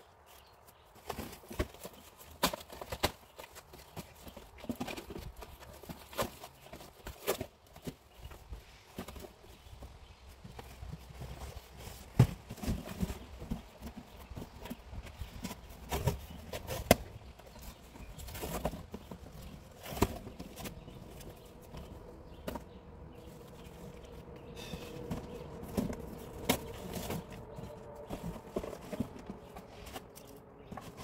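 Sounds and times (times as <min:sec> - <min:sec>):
cardboard thumps and scrapes: 0:11.1 - 0:22.8.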